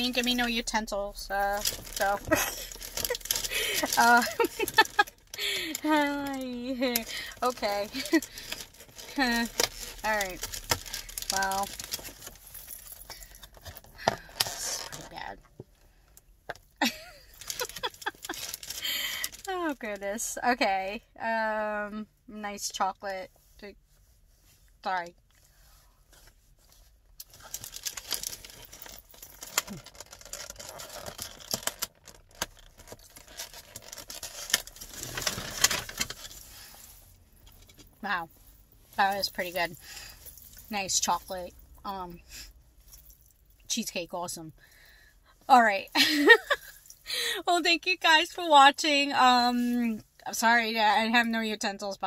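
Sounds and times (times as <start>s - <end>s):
packaging clicks and rustling: 1.5s - 15.1s, 16.9s - 19.5s, 27.2s - 36.4s.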